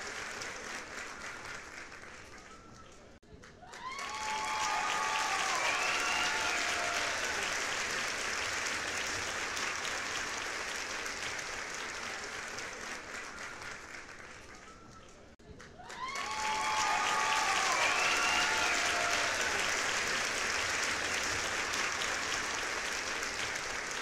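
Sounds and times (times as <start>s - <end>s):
applause: 0.0s - 24.0s.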